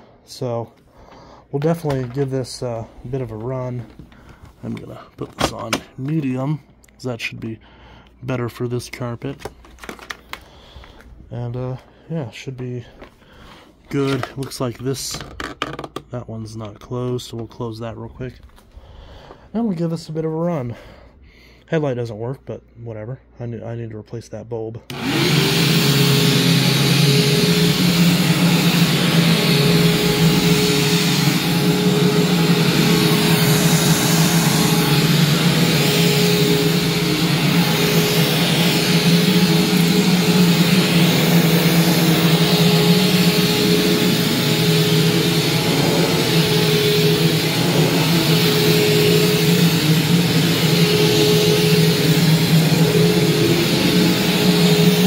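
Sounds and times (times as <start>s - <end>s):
vacuum cleaner running: 0.0s - 6.2s, 24.9s - 55.0s.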